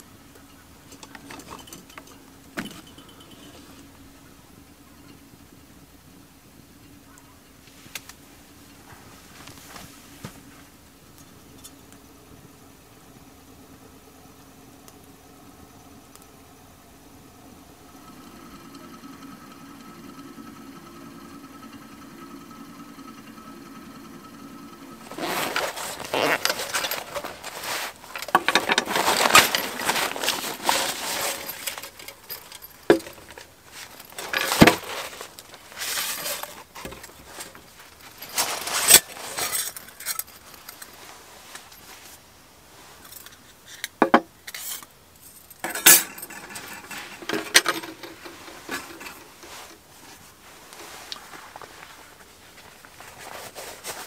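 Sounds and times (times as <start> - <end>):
steady low hum: 0.0 - 54.0
metal clinks and rattles: 0.4 - 3.9, 25.0 - 42.0, 44.5 - 49.7.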